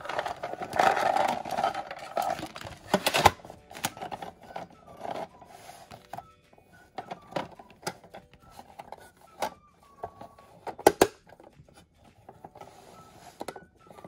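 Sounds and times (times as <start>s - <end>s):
plastic toy pieces clattering: 0.0s - 5.5s.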